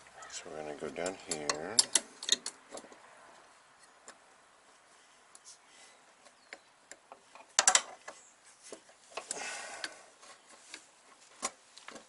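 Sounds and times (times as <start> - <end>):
metal clicks and rattles: 1.0 - 3.0.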